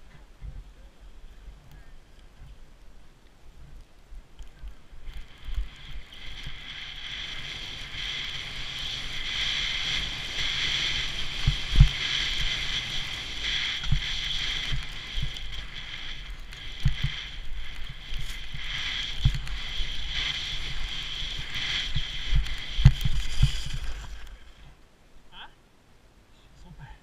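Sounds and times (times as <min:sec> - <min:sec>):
wind on microphone: 0:03.5 - 0:24.8
skis scraping over snow: 0:03.6 - 0:24.8.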